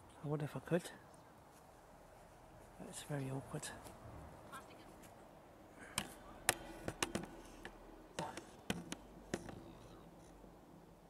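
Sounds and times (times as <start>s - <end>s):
taps on metal railings: 5.9s - 9.7s.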